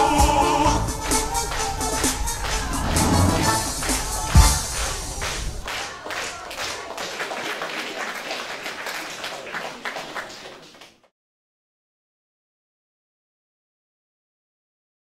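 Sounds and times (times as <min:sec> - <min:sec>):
audience applauding: 0:00.6 - 0:11.1.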